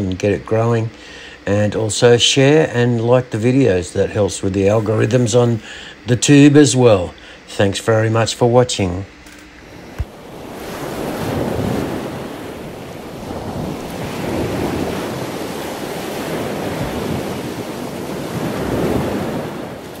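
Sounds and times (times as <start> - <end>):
ocean waves rushing: 9.7 - 20.0.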